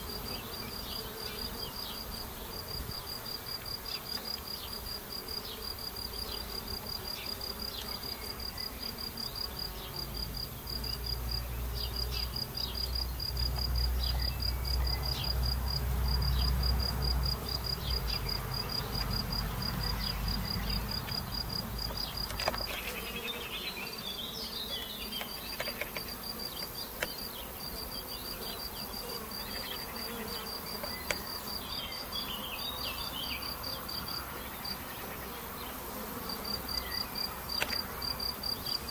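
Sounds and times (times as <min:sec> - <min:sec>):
honeybees buzzing: 0:00.0 - 0:38.9
high-pitched insect chirp: 0:05.6 - 0:35.3.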